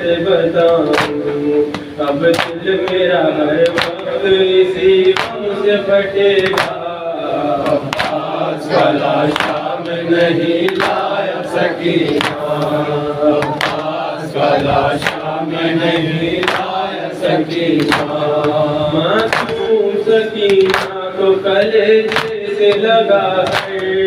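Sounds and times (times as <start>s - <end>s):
men chanting a lament: 0.0s - 24.0s
hands slapping chests: 0.7s - 3.0s, 3.6s - 4.0s, 5.0s - 5.4s, 6.4s - 6.8s, 7.7s - 8.3s, 9.3s - 11.0s, 12.1s - 12.8s, 13.4s - 14.0s, 14.9s - 15.3s, 16.4s - 16.8s, 17.8s - 18.6s, 19.2s - 19.6s, 20.4s - 21.0s, 21.6s - 23.9s.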